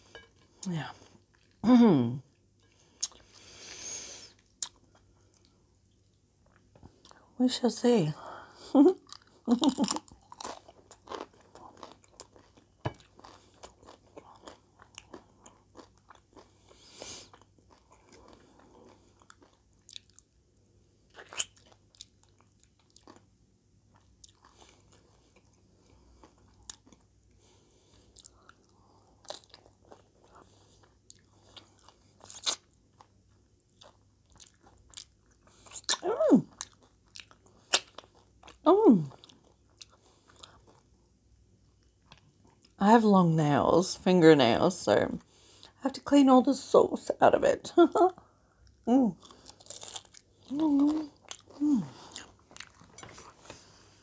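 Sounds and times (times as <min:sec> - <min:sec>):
chewing and crunching chips: 0:08.9 - 0:20.4, 0:21.0 - 0:42.8, 0:48.2 - 0:54.0.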